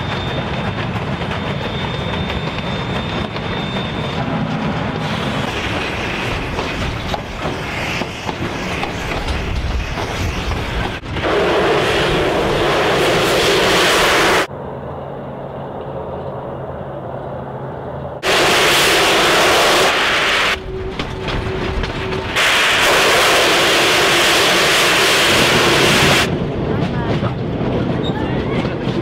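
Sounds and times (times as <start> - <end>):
steam locomotive hissing: 0.0 - 14.5, 18.2 - 26.4
low train rumble: 0.0 - 29.0.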